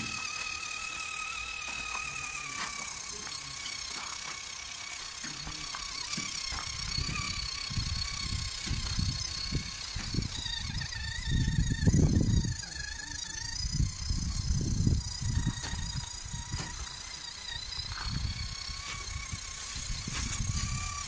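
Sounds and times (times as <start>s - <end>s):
electric motor whining: 0.0s - 21.0s.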